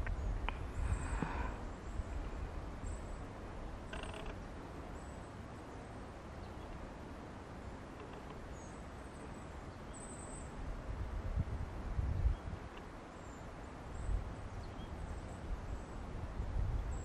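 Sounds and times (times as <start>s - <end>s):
wind rumble on microphone: 0.0s - 4.4s, 10.4s - 17.0s
faint high bird chirps: 8.0s - 10.6s.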